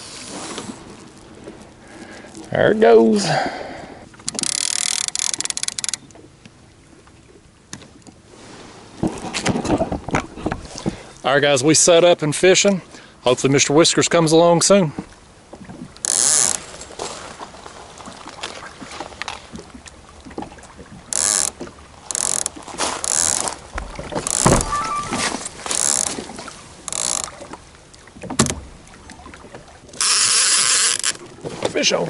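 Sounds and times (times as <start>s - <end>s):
fishing reel clicker buzzing: 4.2s - 6.2s, 16.0s - 16.7s, 21.1s - 23.6s, 24.2s - 24.8s, 25.7s - 26.2s, 26.9s - 27.4s, 30.0s - 31.2s.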